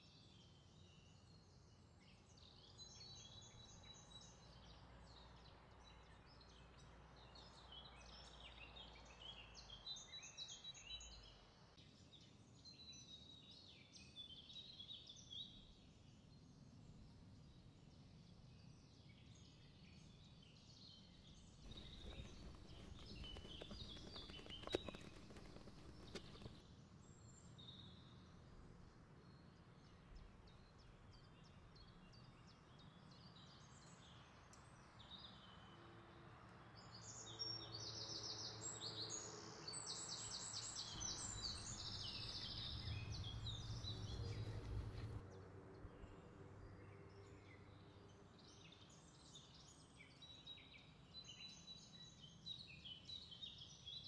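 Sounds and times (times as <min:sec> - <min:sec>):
birds chirping: 0:21.7 - 0:26.6, 0:40.9 - 0:45.2
spatula folding cream in bowl: 0:21.7 - 0:26.6.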